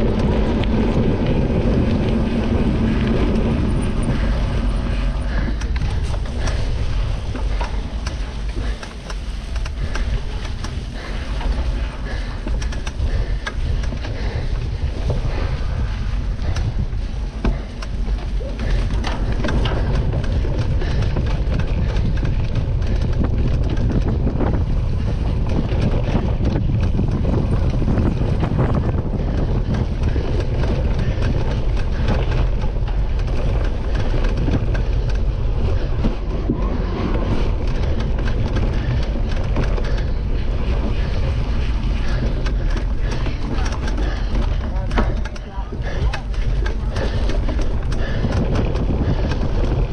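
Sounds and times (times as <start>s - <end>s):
bike rattling over bumpy ground: 0.0s - 49.9s
wind buffeting microphone: 0.0s - 49.9s.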